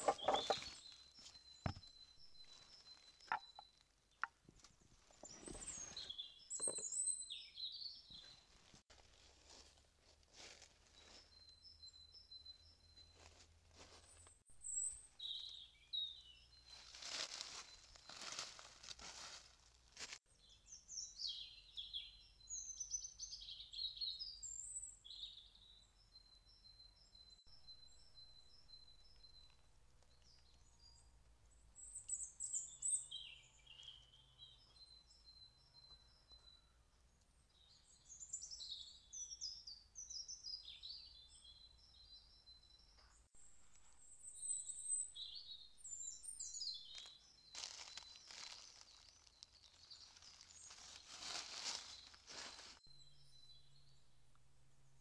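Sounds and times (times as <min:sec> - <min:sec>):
songbirds singing: 0:00.0 - 0:08.6, 0:10.8 - 0:18.7, 0:20.3 - 0:55.0.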